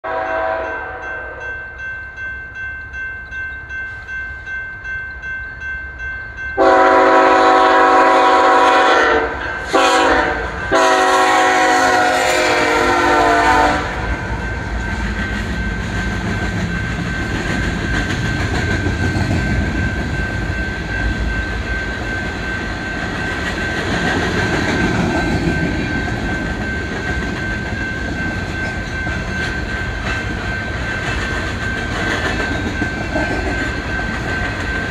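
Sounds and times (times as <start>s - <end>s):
diesel locomotive horn blasts: 0.0s - 1.5s, 6.6s - 14.3s
train rumbling past: 0.1s - 34.9s
wheels clacking on rails: 0.2s - 34.9s.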